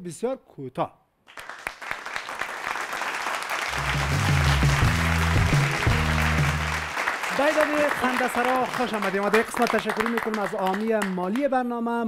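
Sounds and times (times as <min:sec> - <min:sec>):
audience applauding: 0:01.3 - 0:11.4
jingle music with deep bass: 0:03.7 - 0:06.9.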